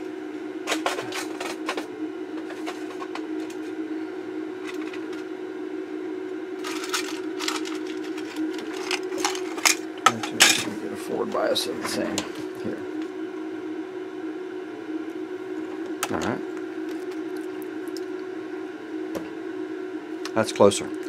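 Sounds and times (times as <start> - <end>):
steady hum: 0.0 - 21.0
small parts clicking and rattling: 6.6 - 9.8.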